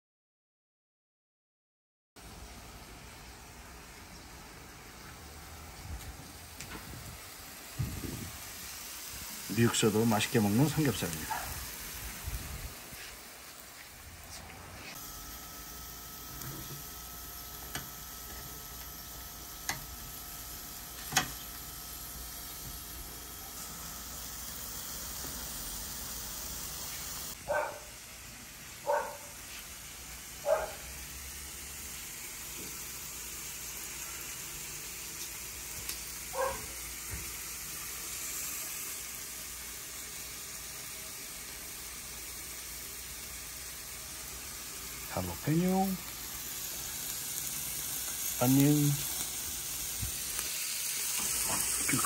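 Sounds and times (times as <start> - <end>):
meat sizzling on a grill: 2.2 - 52.0
dog barking: 11.2 - 11.6, 27.5 - 27.9, 28.8 - 29.4, 30.4 - 30.9, 36.3 - 36.8.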